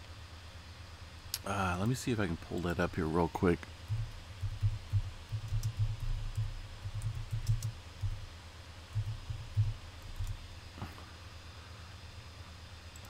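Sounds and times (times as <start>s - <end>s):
keyboard typing and mouse clicks: 3.8s - 8.3s, 8.9s - 10.4s
low dull knocks: 3.9s - 8.3s, 9.0s - 10.4s.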